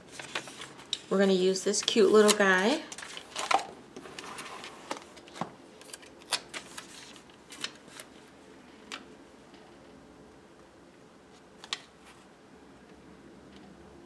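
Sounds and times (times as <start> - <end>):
paper rustling: 0.0 - 8.3.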